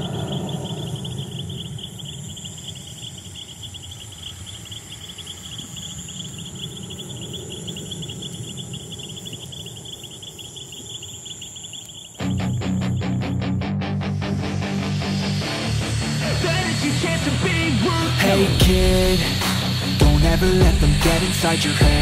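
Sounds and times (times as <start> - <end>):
crickets chirping: 0.0 - 22.0
loud guitar music: 12.2 - 22.0.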